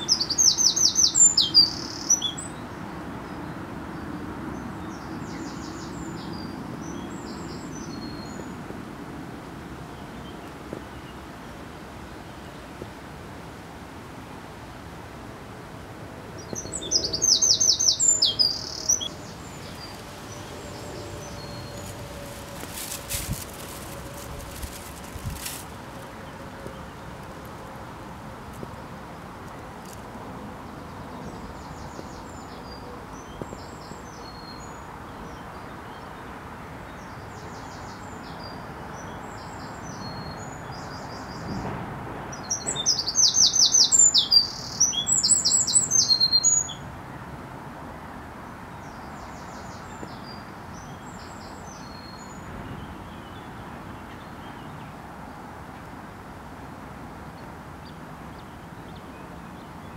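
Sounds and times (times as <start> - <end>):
small birds trilling: 0.0 - 2.5, 16.4 - 26.0
steady outdoor hiss: 0.0 - 59.9.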